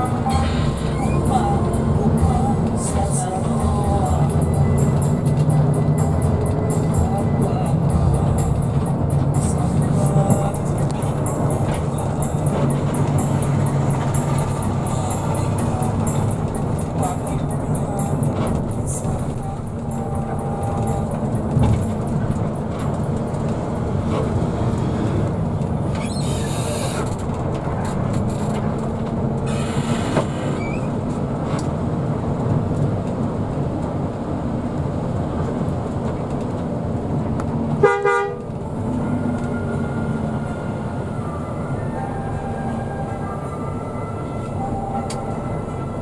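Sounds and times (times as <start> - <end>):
vehicle rumble: 0.0 - 46.0
horn blast: 37.8 - 38.5.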